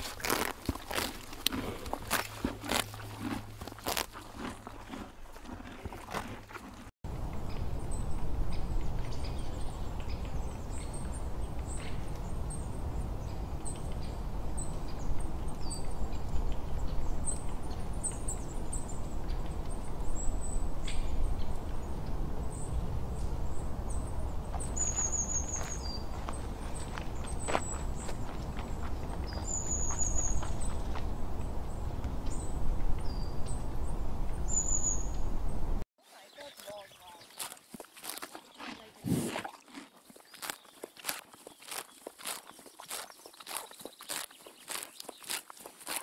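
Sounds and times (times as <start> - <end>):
small birds chirping: 7.3 - 46.0
bird trill: 34.4 - 35.2
faint crunches and clicks: 39.4 - 46.0.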